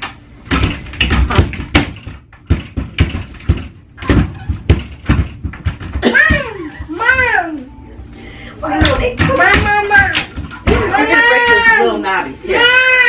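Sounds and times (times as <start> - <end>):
wooden knocks and clatter: 0.0 - 7.3, 8.7 - 11.6.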